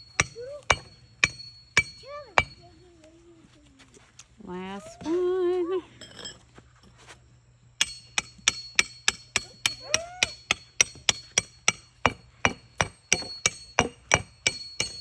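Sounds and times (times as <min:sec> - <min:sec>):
hammer striking steel rebar: 0:00.0 - 0:02.6, 0:07.8 - 0:15.0.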